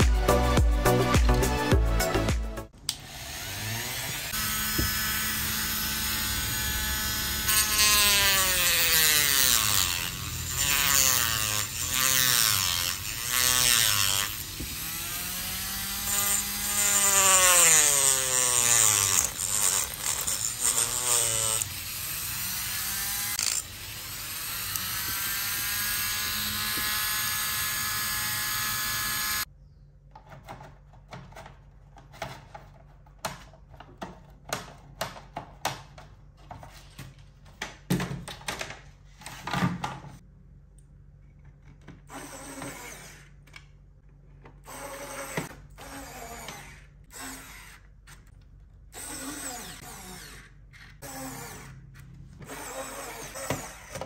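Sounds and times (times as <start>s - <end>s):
rotary tool cutting plastic: 2.9s - 29.5s, 42.0s - 43.7s, 44.4s - 54.0s
plastic parts clicking and knocking: 30.0s - 40.2s.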